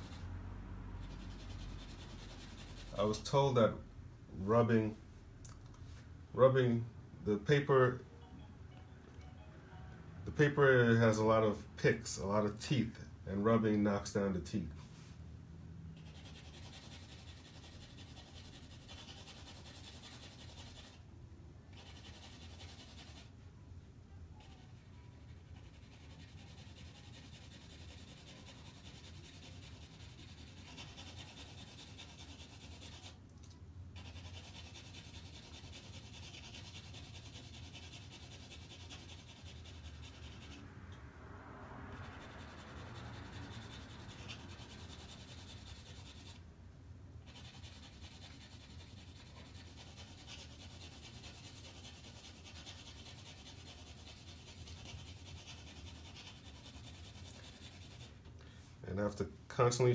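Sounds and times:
pencil shading on paper: 0:01.0 - 0:03.0, 0:16.0 - 0:21.0, 0:21.8 - 0:23.3, 0:24.4 - 0:33.2, 0:34.0 - 0:40.6, 0:42.0 - 0:46.4, 0:47.2 - 0:58.1.

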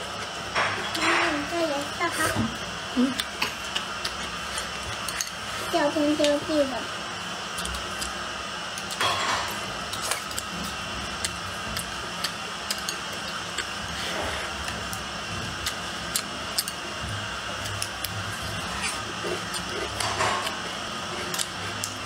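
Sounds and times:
person chewing: 0:09.8 - 0:22.0.

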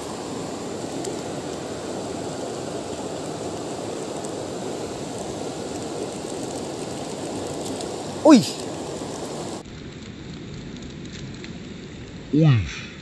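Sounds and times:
river water rushing: 0:00.0 - 0:09.6.

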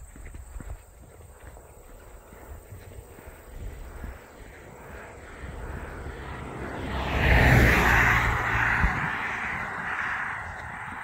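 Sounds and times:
car passing by: 0:03.3 - 0:11.0.

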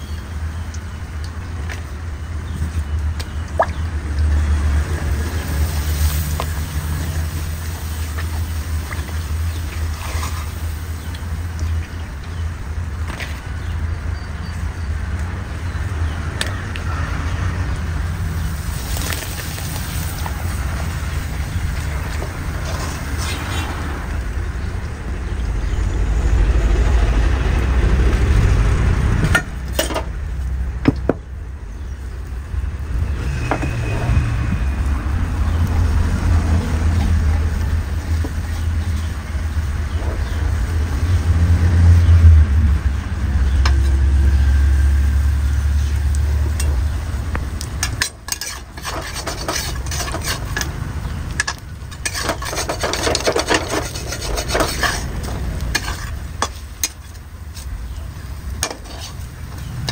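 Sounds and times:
low rumble: 0:02.0 - 0:47.9
oil sizzling: 0:04.2 - 0:13.1, 0:17.8 - 0:24.5, 0:42.8 - 0:59.9
metal spatula scraping a wok: 0:09.8 - 0:11.1, 0:47.8 - 0:57.6, 0:58.6 - 0:59.9.

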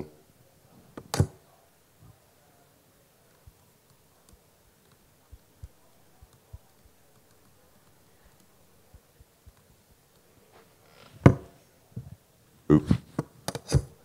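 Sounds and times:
laptop keyboard keystrokes: 0:03.3 - 0:10.3.

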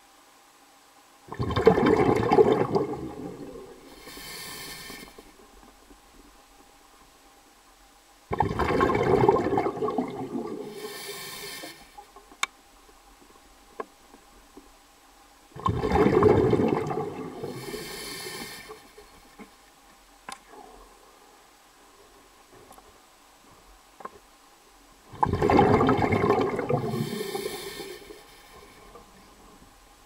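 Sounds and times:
rushing gurgling water: 0:01.3 - 0:05.4, 0:08.3 - 0:11.9, 0:15.5 - 0:18.8, 0:25.0 - 0:29.4
faint clicks: 0:11.7 - 0:14.8, 0:18.5 - 0:20.7.

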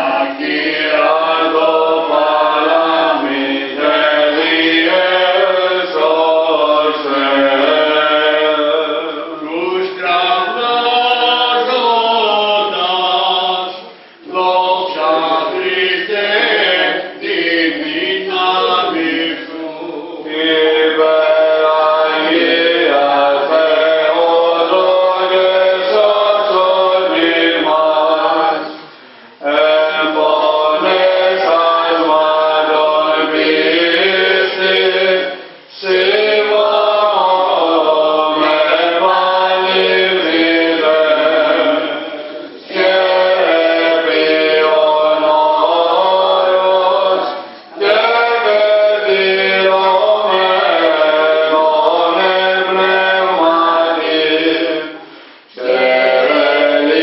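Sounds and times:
person chanting: 0:00.0 - 0:28.8, 0:29.4 - 0:57.0.

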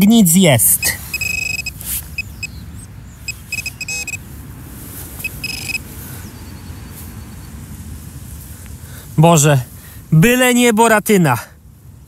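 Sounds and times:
metal detector beeps: 0:00.6 - 0:04.2, 0:05.2 - 0:05.8.

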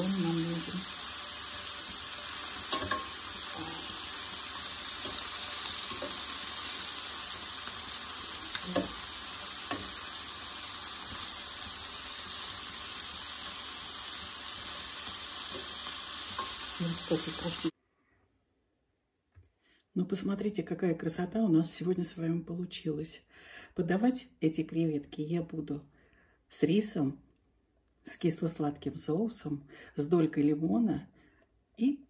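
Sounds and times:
shrimp sizzling in a skillet: 0:00.0 - 0:17.8
fork clicking on pan: 0:02.7 - 0:03.2, 0:08.5 - 0:09.0, 0:09.6 - 0:10.0, 0:16.3 - 0:16.6.

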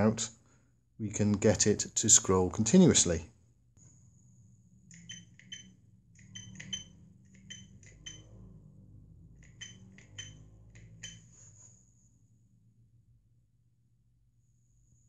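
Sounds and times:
faint low hum: 0:00.0 - 0:15.0
keypad keys clicking: 0:04.9 - 0:08.2, 0:09.4 - 0:11.2.

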